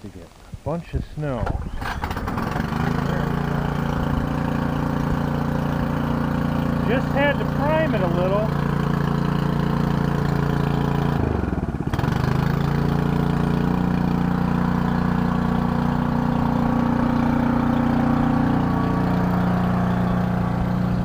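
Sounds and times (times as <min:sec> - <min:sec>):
small gas engine running: 0:01.5 - 0:21.0.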